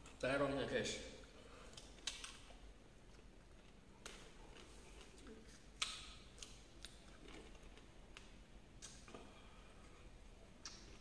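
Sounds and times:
mouth smacks and clicks eating: 0:01.6 - 0:09.2, 0:10.6 - 0:11.0.

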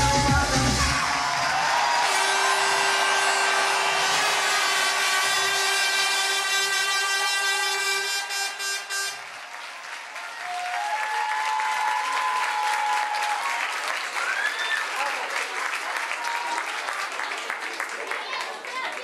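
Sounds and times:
audience applause: 0:00.0 - 0:19.0
long drawn-out cheer: 0:00.0 - 0:19.0.

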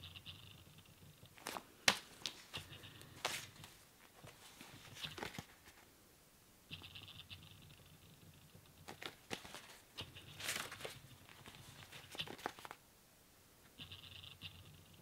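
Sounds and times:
paper pages rustling and flipping: 0:01.4 - 0:02.6, 0:03.2 - 0:05.9, 0:08.8 - 0:12.8.

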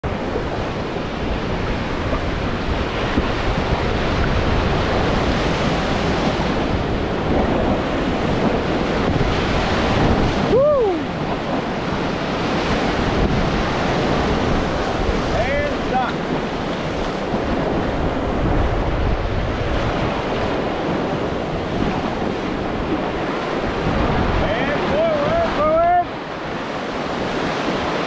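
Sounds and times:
whitewater rapids rushing: 0:00.0 - 0:28.0
person whooping: 0:10.4 - 0:11.2.

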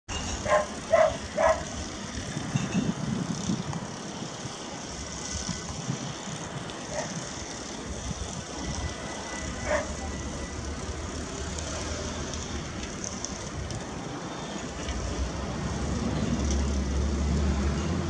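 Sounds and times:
steady high hiss: 0:00.1 - 0:17.6
dog barking: 0:00.4 - 0:01.7, 0:09.6 - 0:10.0.

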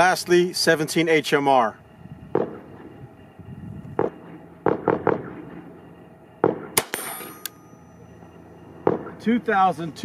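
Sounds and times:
gunshot: 0:02.4 - 0:02.6, 0:04.0 - 0:05.6, 0:06.4 - 0:07.4
sharp crack: 0:06.4 - 0:07.6.

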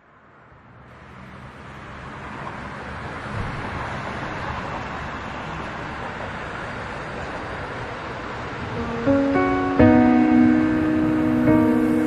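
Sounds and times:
waterfall rushing: 0:08.7 - 0:12.0.

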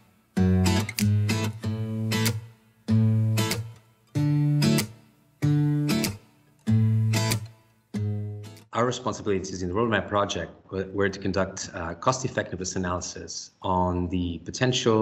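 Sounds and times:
acoustic guitar strumming chords: 0:00.0 - 0:08.7.

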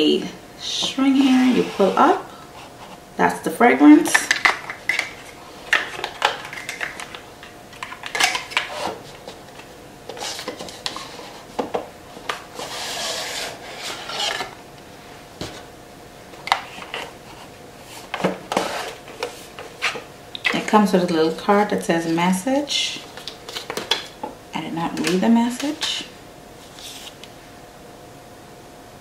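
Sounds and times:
rustling slide of packaging: 0:26.6 - 0:27.3.

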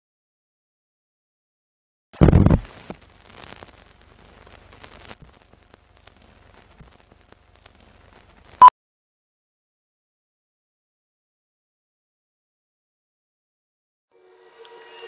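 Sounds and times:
faint crackle with clicks: 0:02.2 - 0:08.6.

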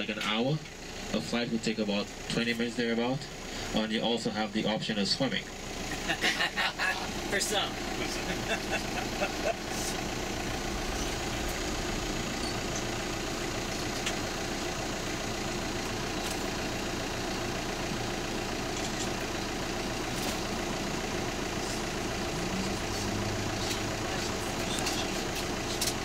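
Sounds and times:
bus engine idling: 0:00.0 - 0:26.0
deeper hum: 0:07.7 - 0:26.0.

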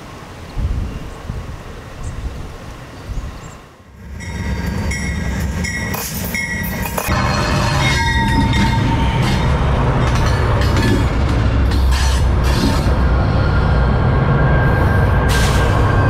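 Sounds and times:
locomotive rumbling overhead: 0:01.1 - 0:16.0
high ringing tones: 0:04.0 - 0:09.8.

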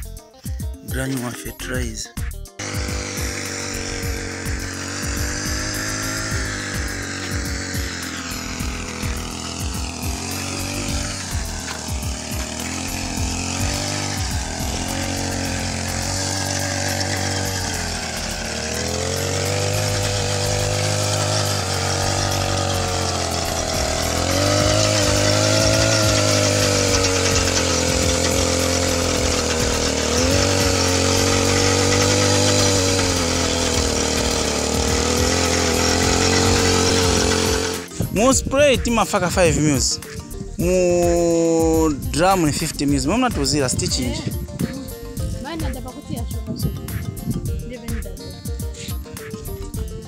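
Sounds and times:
small engine running: 0:00.0 - 0:50.0.

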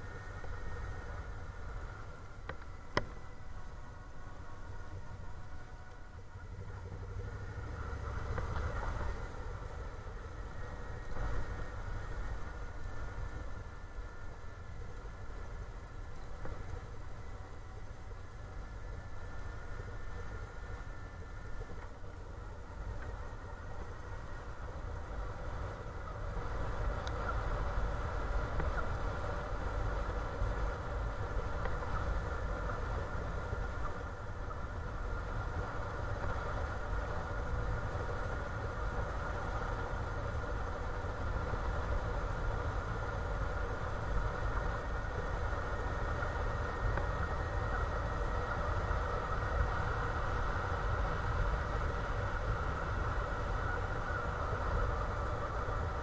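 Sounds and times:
wind and road noise rumble: 0:00.0 - 0:56.0.

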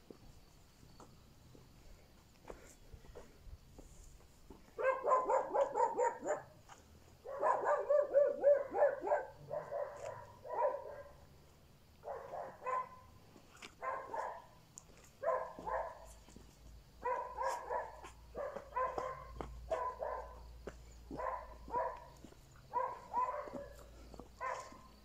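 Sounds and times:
dog barking rapidly: 0:04.8 - 0:06.6, 0:07.2 - 0:11.2, 0:12.1 - 0:13.1, 0:13.8 - 0:14.5, 0:15.2 - 0:16.1, 0:17.0 - 0:20.4, 0:21.1 - 0:23.8, 0:24.4 - 0:24.9.

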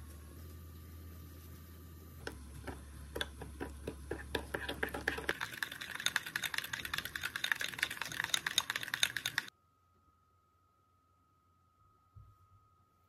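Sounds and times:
fast typing on keyboard: 0:04.6 - 0:09.5.

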